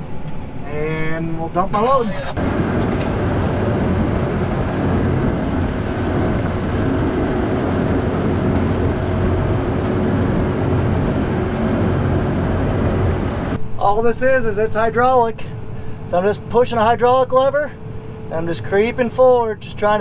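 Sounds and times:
tractor diesel engine running: 0:01.8 - 0:16.2.

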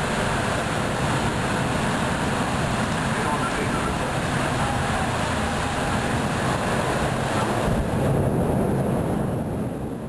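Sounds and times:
thunderstorm rushing noise: 0:00.0 - 0:10.0
low thunder rumble: 0:04.2 - 0:10.0.

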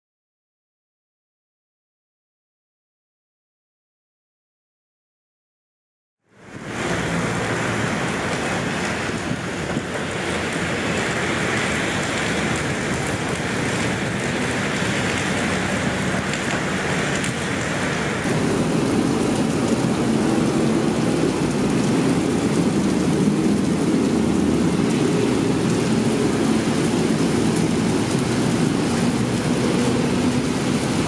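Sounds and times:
city road traffic rumble: 0:06.3 - 0:31.0
steady rain falling: 0:06.3 - 0:31.0.

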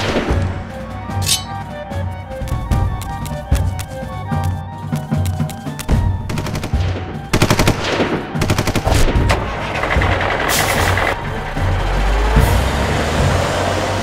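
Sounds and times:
background music: 0:00.0 - 0:14.0
machine-gun fire: 0:06.4 - 0:09.3.

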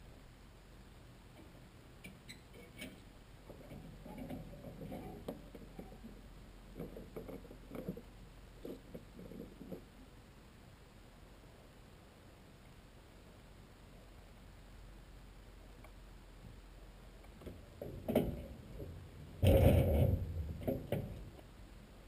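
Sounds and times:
soft knocking and rattling: 0:01.3 - 0:09.9, 0:17.3 - 0:21.5.

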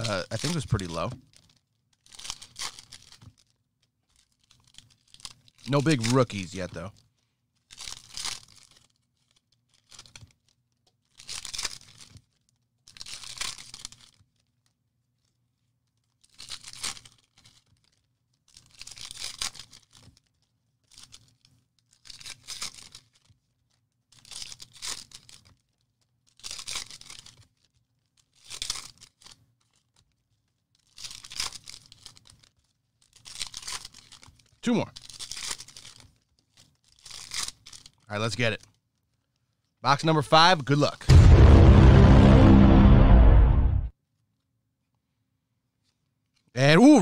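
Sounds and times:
card pack wrappers ripping: 0:00.0 - 0:03.5, 0:04.1 - 0:06.9.

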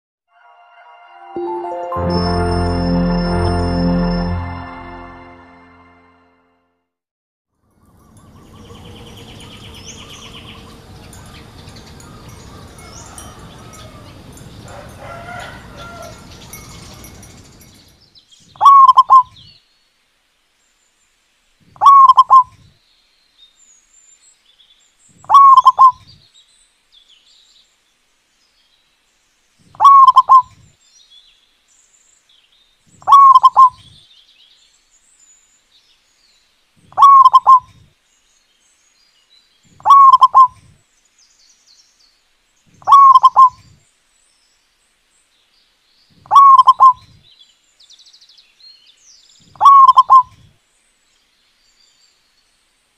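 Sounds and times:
dove cooing: 0:18.6 - 0:19.2, 0:21.8 - 0:22.5, 0:25.3 - 0:25.9, 0:29.8 - 0:30.4, 0:33.1 - 0:33.7, 0:37.0 - 0:37.7, 0:39.8 - 0:40.6, 0:42.9 - 0:43.6, 0:46.3 - 0:47.0, 0:49.6 - 0:50.3
faint high chirps: 0:29.8 - 0:30.6, 0:39.8 - 0:40.6.

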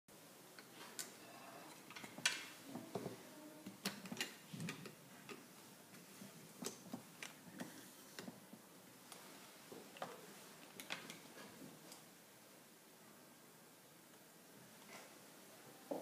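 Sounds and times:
small clicks and light knocks: 0:09.9 - 0:11.2.

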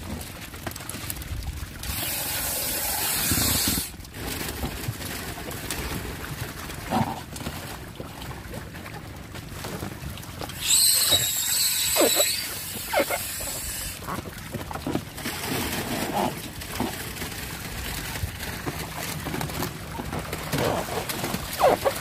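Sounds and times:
high whistling hiss: 0:10.6 - 0:14.0.

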